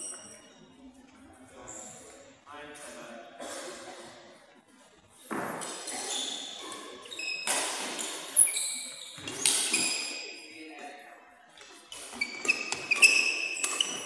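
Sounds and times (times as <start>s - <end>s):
shoes squeaking on court floor: 0.0s - 0.6s, 5.2s - 10.5s, 11.6s - 14.0s.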